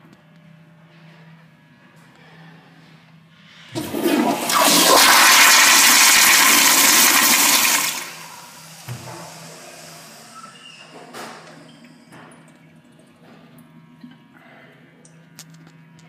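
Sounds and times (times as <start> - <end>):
toilet flushing: 3.6 - 12.2.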